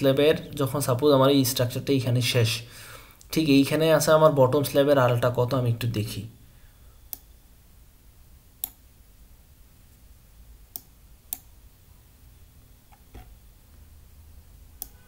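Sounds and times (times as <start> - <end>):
faint background hiss: 0.0 - 15.0
computer mouse clicks: 7.1 - 7.3, 8.6 - 8.8, 10.7 - 11.5, 14.8 - 15.0.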